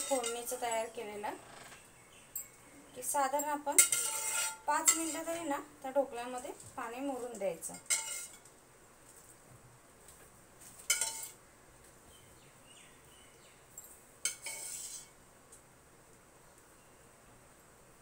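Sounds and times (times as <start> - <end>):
spoon clinking on metal pan: 0.0 - 1.0, 3.3 - 5.3, 7.3 - 8.4, 10.9 - 11.4, 14.2 - 15.1.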